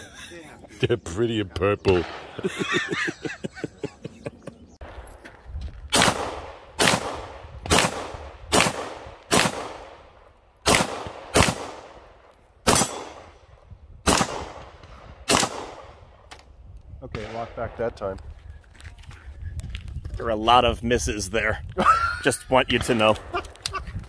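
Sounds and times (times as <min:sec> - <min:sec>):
pistol gunshots: 0:01.9 - 0:02.6, 0:05.9 - 0:16.2, 0:17.1 - 0:18.0.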